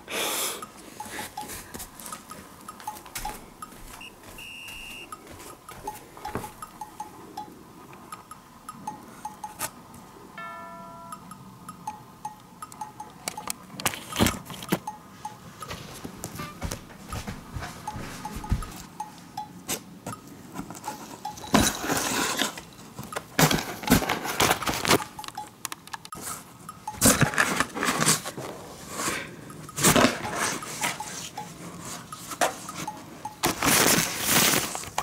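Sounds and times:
light plinky background music: 0:10.4 - 0:14.2, 0:14.8 - 0:15.8, 0:16.4 - 0:20.2.

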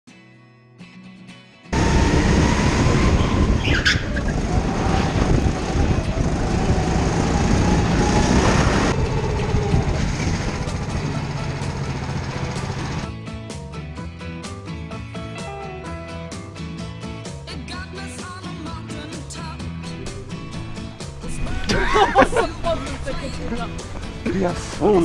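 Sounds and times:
go-kart engine: 0:01.8 - 0:13.1
rushing wind noise: 0:01.8 - 0:13.1.

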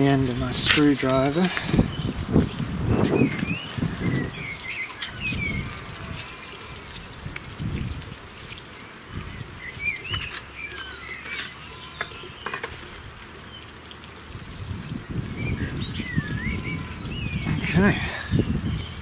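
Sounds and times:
small birds chirping: 0:00.0 - 0:19.0
emery paper scratchy rubbing: 0:04.6 - 0:08.7.

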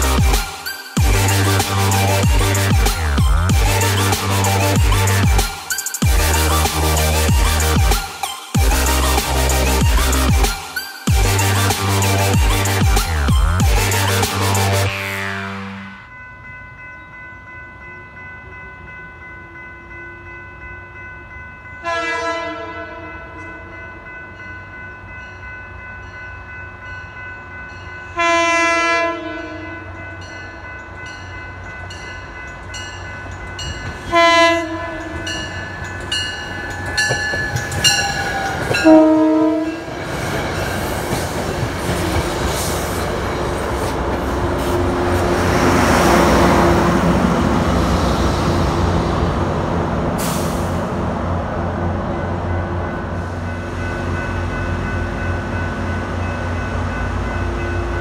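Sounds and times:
train rumbling past: 0:00.0 - 0:08.0, 0:11.1 - 0:58.0
train horn blowing: 0:13.8 - 0:16.1, 0:21.8 - 0:23.7, 0:28.1 - 0:30.0, 0:34.0 - 0:35.5, 0:37.8 - 0:40.0.

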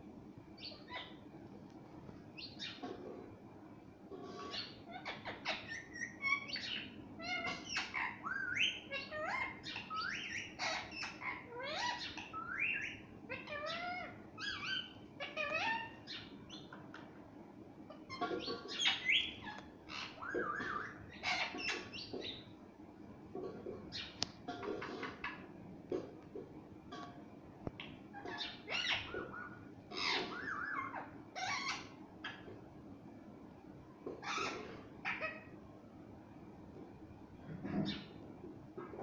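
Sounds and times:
parakeet calling: 0:00.6 - 0:01.3, 0:02.4 - 0:03.2, 0:04.3 - 0:17.1, 0:17.9 - 0:22.6, 0:27.8 - 0:32.6, 0:34.0 - 0:35.6, 0:37.7 - 0:38.2.

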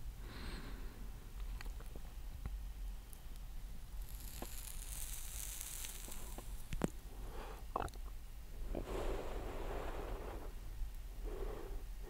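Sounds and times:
exhaled breath: 0:00.2 - 0:01.3, 0:08.7 - 0:10.6, 0:11.2 - 0:12.0
cigarette tip crackling: 0:01.6 - 0:07.0.

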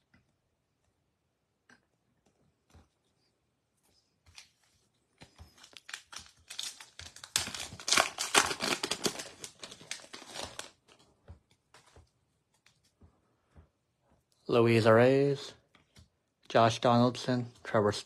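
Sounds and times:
foil wrapper crinkling: 0:05.2 - 0:11.1.

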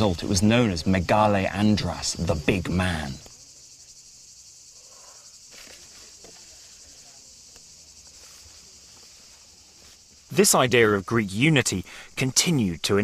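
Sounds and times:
insects chirring: 0:00.0 - 0:13.0.

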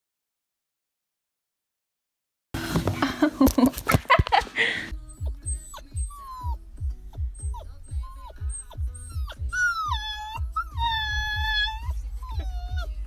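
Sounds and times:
background music with steady beat: 0:04.0 - 0:13.0
puppy whining: 0:04.9 - 0:13.0
puppy howling: 0:05.1 - 0:13.0.

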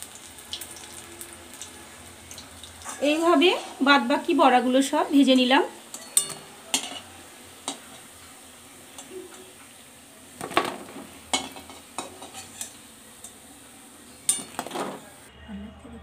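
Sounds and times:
oil sizzling: 0:00.0 - 0:15.3
metal spatula scraping pan: 0:02.8 - 0:03.9, 0:11.3 - 0:13.4.

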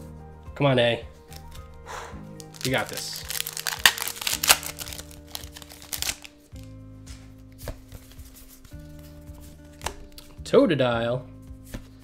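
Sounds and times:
soft background music: 0:00.0 - 0:12.0
foil wrapper tearing and crinkling: 0:02.4 - 0:06.4
cards rustling: 0:02.4 - 0:06.5.

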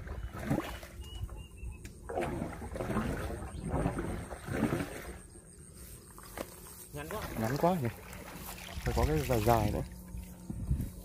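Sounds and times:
water sloshing in a culvert: 0:00.0 - 0:11.0.

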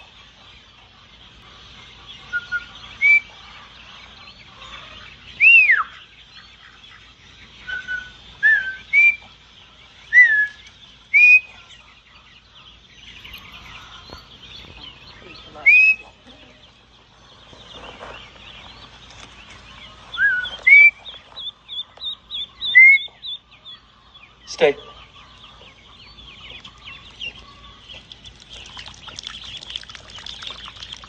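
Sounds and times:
ducklings peeping: 0:00.0 - 0:31.0
herding whistles: 0:07.7 - 0:09.2, 0:10.2 - 0:11.5, 0:15.6 - 0:16.0, 0:20.2 - 0:21.0, 0:22.7 - 0:23.1.

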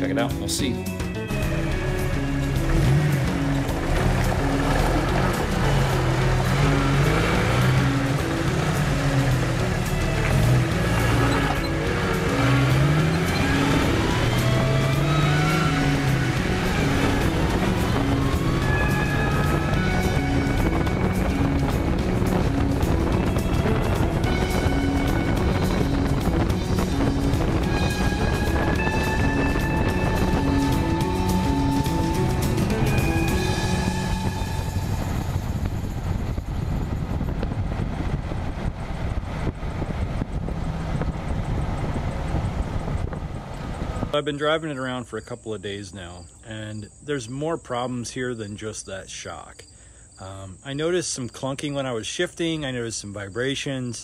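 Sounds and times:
background music with held notes: 0:00.0 - 0:37.2
road wind and drivetrain noise: 0:00.0 - 0:45.0
low rumble of tyres: 0:01.3 - 0:45.0.

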